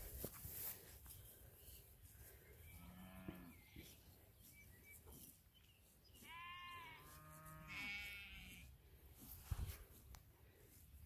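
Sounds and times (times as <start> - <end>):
sheep bleating: 6.2 - 8.7.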